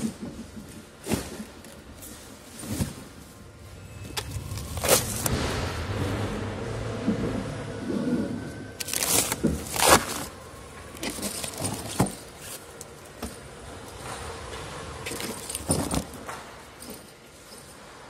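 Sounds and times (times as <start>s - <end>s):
plastic wrap crinkling: 8.8s - 10.4s.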